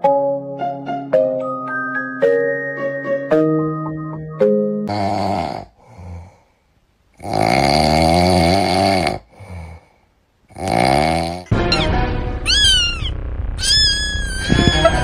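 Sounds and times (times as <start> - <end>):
rasping snores: 4.9 - 6.3, 7.2 - 9.8, 10.5 - 11.5.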